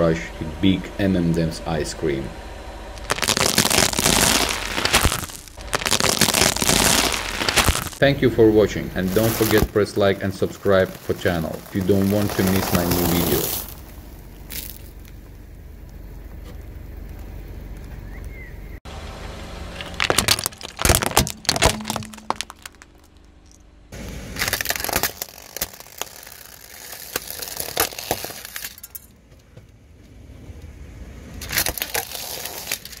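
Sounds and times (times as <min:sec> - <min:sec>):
tyre crushing plastic toys: 0:03.0 - 0:08.0, 0:09.0 - 0:15.1, 0:19.7 - 0:23.6, 0:24.4 - 0:29.1, 0:31.4 - 0:33.0.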